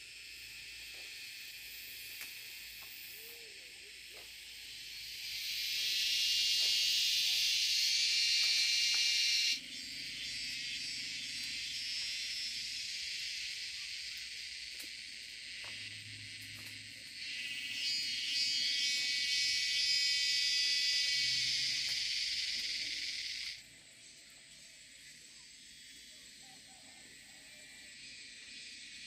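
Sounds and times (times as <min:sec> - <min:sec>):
insects chirring: 0:00.0 - 0:29.0.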